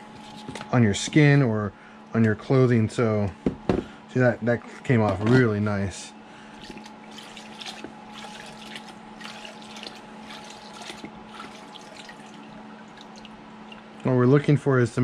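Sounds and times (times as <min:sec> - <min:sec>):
faint hum: 0:00.0 - 0:15.0
liquid splashing and dripping: 0:06.6 - 0:14.1.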